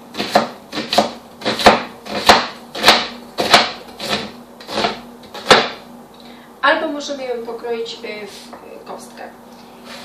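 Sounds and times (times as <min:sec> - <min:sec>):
knife slicing onion on board: 0:00.1 - 0:05.8.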